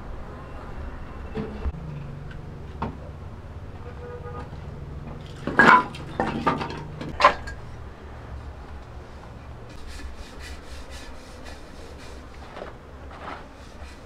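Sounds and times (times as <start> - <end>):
metal cookware clattering: 5.2 - 7.7.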